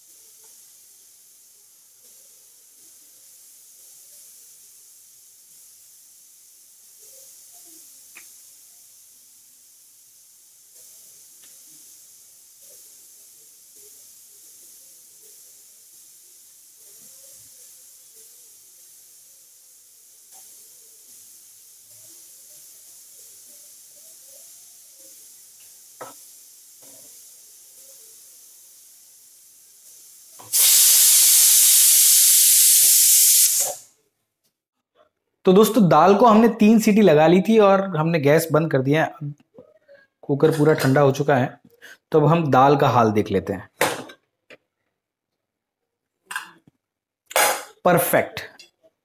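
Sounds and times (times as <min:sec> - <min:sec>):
pressure cooker faint hiss: 0:00.0 - 0:34.0
pressure cooker steam whistle: 0:30.4 - 0:33.9.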